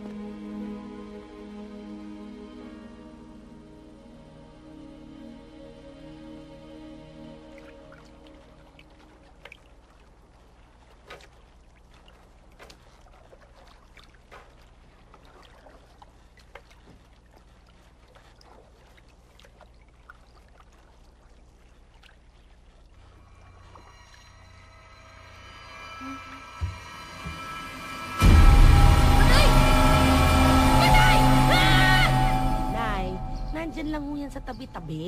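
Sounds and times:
faint low hum: 0.0 - 35.0
sea water lapping: 6.2 - 28.5
water dripping off net: 7.5 - 24.1
low tone: 23.0 - 35.0.

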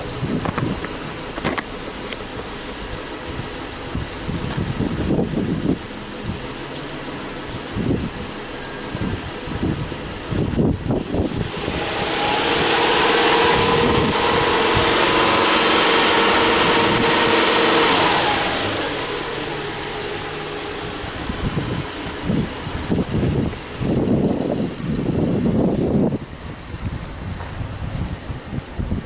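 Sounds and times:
car engine revving: 0.0 - 27.0.

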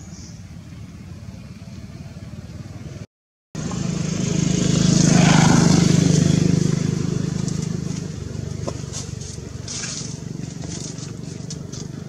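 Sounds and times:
low engine hum: 3.6 - 12.0
vehicle engine passing: 3.6 - 12.0.

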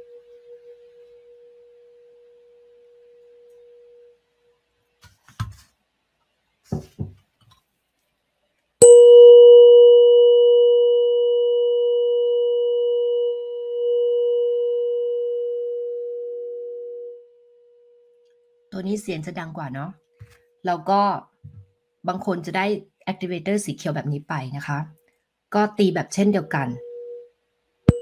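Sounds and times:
tuning fork ringing: 0.0 - 4.3, 8.8 - 18.6, 26.6 - 27.3
soft knocks: 6.7 - 7.2
mallet striking tuning fork: 8.8 - 17.3.

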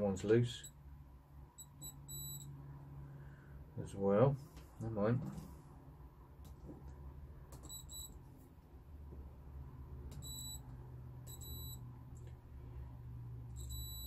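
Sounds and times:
low steady hum: 0.0 - 14.0
multimeter short high beeps: 1.6 - 2.5, 7.6 - 8.2, 10.2 - 10.7, 11.3 - 11.8, 13.6 - 14.0.

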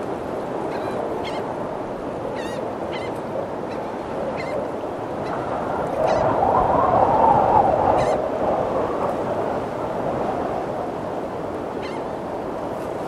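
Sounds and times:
steady rushing noise: 0.0 - 13.0
birds giving wavy calls: 0.7 - 1.5, 2.4 - 5.4, 11.8 - 12.1.

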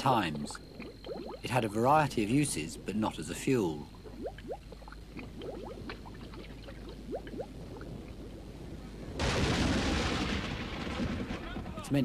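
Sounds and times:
oil bubbling and gurgling: 0.6 - 1.5, 3.8 - 8.6.

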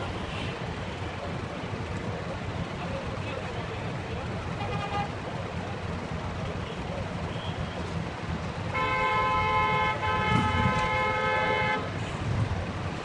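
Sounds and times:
low traffic rumble: 0.0 - 13.0
car horn: 4.5 - 5.2, 8.7 - 12.0.

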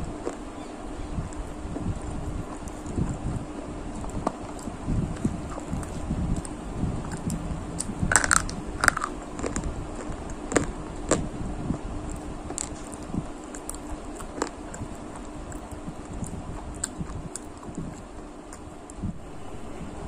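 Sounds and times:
low steady hum: 0.0 - 20.0
brittle sticks crunching: 4.0 - 11.3, 12.0 - 19.0.

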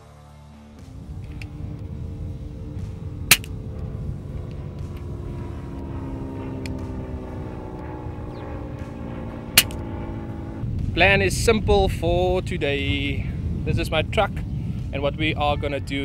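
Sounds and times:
steady low rumble: 0.8 - 16.0
suppressed air rifle shots: 3.3 - 3.6, 9.6 - 9.8.

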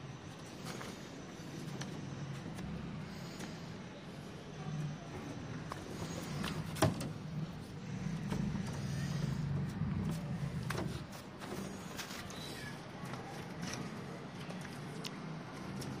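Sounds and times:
low engine hum: 1.6 - 13.3.

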